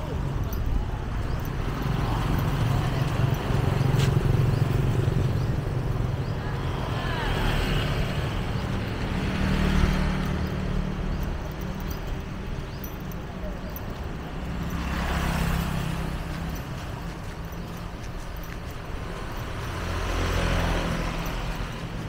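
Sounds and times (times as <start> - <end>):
traffic low rumble: 0.0 - 22.0
faint voices: 10.6 - 14.8.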